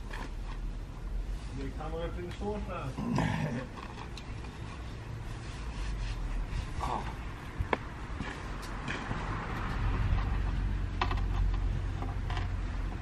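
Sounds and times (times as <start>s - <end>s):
light sharp clicks and creaks: 7.7s - 13.0s.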